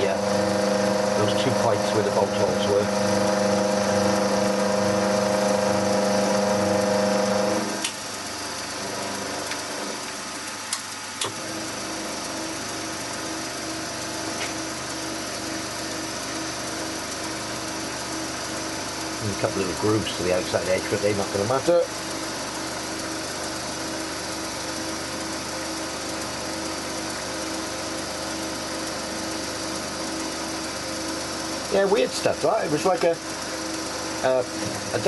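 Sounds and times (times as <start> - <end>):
spindle running: 0.0 - 7.9
milling machine whining: 0.0 - 10.6, 11.2 - 35.0.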